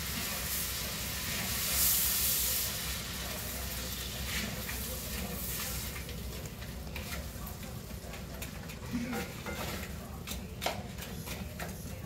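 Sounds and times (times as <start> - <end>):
vegetables sizzling in a skillet: 0.0 - 7.7.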